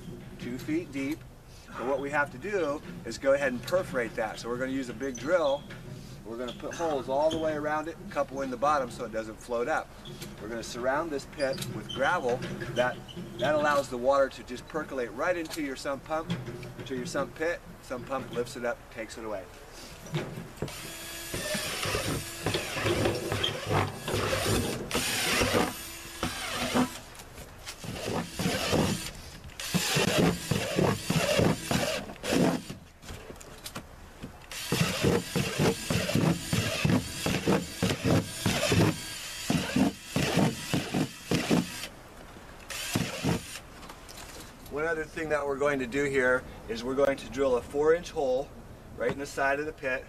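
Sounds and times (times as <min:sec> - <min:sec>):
cordless drill boring plastic: 0:20.7 - 0:27.0, 0:27.8 - 0:32.8, 0:34.5 - 0:41.9, 0:42.7 - 0:43.6.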